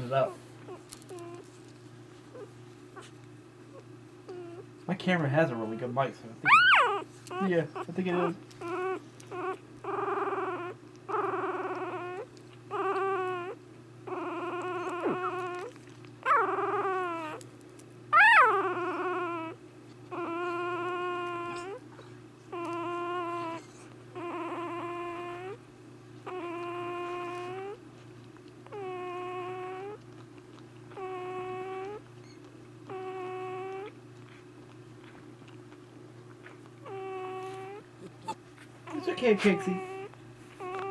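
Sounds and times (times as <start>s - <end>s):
puppy whimpering and crying: 0.0s - 4.8s, 5.4s - 40.9s.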